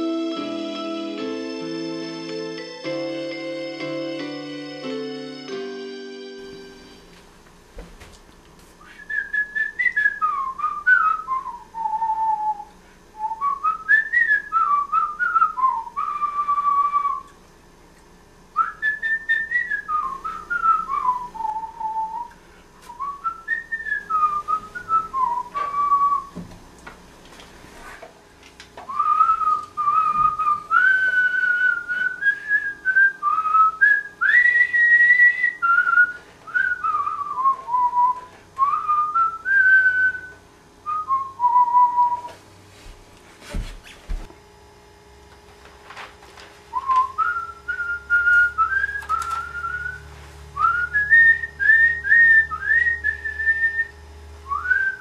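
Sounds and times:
person whistling a melody: 8.8 - 17.3, 18.6 - 26.3, 28.9 - 42.4, 46.7 - 55.0.

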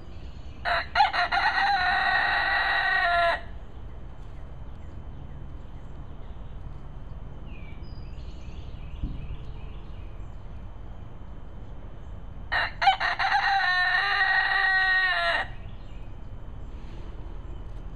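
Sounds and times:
rooster crowing: 0.6 - 3.6, 12.5 - 15.6
faint chirping calls: 3.2 - 12.4.

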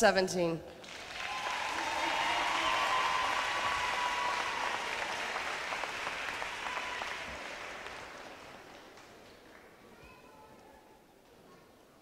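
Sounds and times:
audience applause: 0.8 - 9.8.

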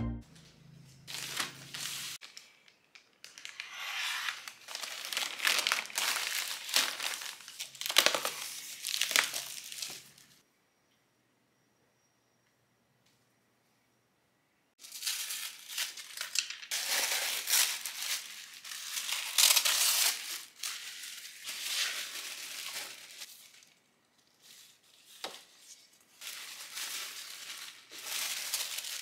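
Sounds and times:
packaging crinkling: 1.1 - 10.4, 14.8 - 23.8, 26.2 - 29.0.

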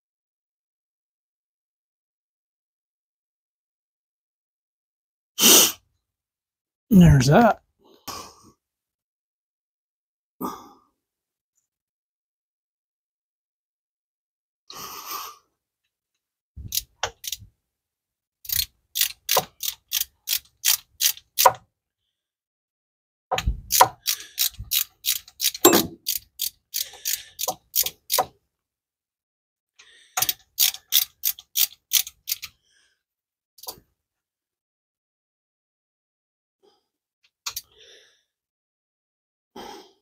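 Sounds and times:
socket ratchet clicking: 16.7 - 17.4, 18.5 - 21.6, 23.7 - 28.3, 30.2 - 32.5.

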